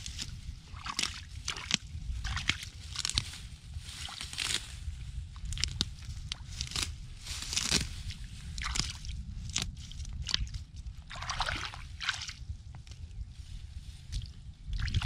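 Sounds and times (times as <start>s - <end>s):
hands sloshing in muddy water: 0.6s - 3.2s, 8.6s - 12.4s, 14.1s - 15.0s
small water splashes: 10.2s - 12.4s.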